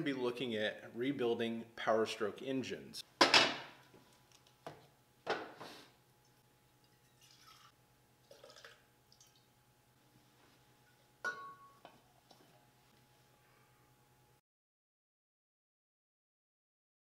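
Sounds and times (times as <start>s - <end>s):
faint steady hum: 0.0s - 14.4s
ringing clink: 11.2s - 11.9s
tools knocking and clinking: 11.2s - 12.0s.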